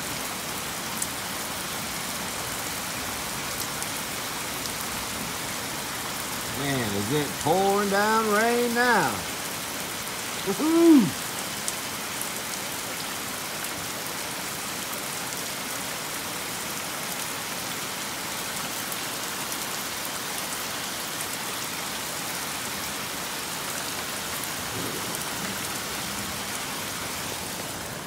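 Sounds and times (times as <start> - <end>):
heavy rain pouring: 0.0 - 28.0.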